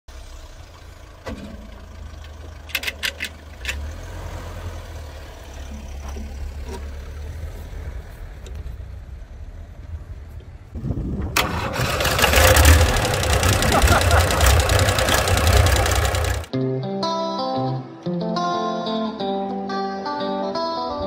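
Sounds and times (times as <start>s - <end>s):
steady low rumble: 5.6s - 16.5s.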